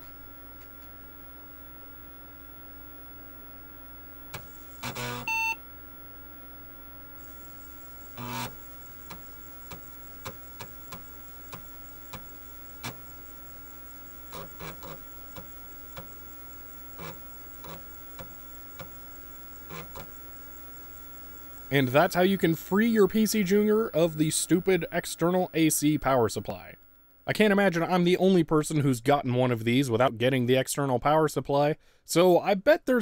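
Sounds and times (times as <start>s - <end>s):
steady hum: 0.0s - 29.6s
computer beep: 5.0s - 5.6s
floppy drive clunking and ticking: 8.1s - 21.7s.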